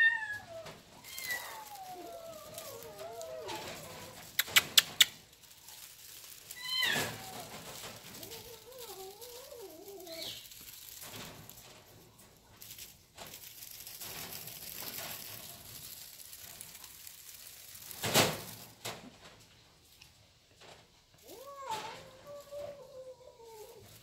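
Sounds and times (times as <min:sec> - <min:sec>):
kitten meowing: 0:00.0 - 0:04.6, 0:06.5 - 0:07.5
soft rustling and handling: 0:00.2 - 0:24.0.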